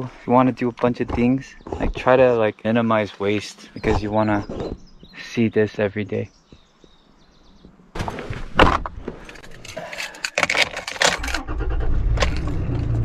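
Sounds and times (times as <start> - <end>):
truck engine starting and running: 11.0 - 13.0.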